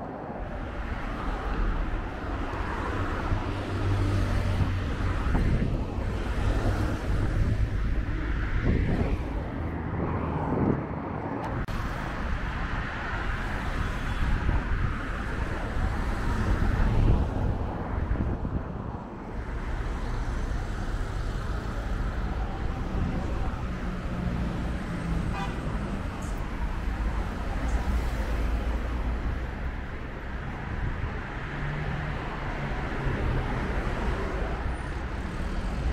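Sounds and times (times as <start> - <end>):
highway traffic rushing past: 0.0 - 35.9.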